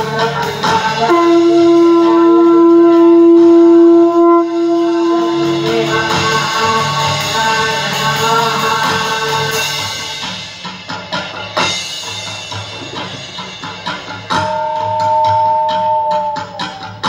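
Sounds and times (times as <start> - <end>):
sustained musical backing: 0.0 - 17.0
conch shell blown: 0.7 - 7.7, 14.3 - 17.0.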